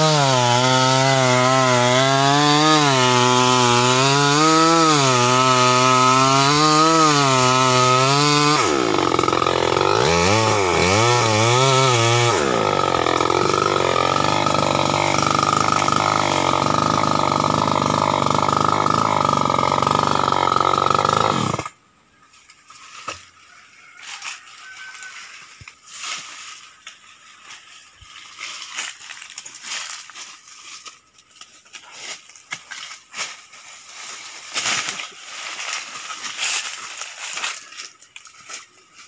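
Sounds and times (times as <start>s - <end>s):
chainsaw running: 0.0s - 21.8s
dry brush crackling and scraping: 22.3s - 39.0s.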